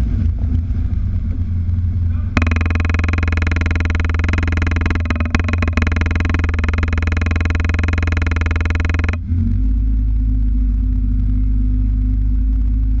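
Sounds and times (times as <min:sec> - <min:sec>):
vehicle engine running: 0:01.9 - 0:13.0.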